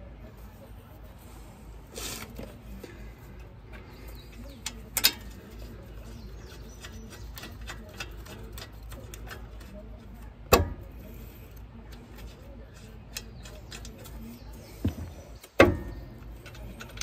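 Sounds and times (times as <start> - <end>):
light ticks of caliper handling: 2.2 - 6.1.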